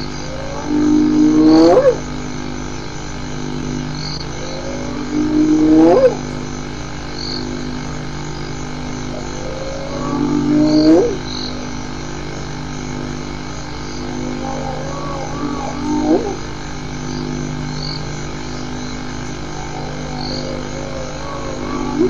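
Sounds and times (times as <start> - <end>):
steady low hum: 0.0 - 22.0
hyena whooping: 9.1 - 11.2, 14.1 - 16.5, 19.4 - 22.0.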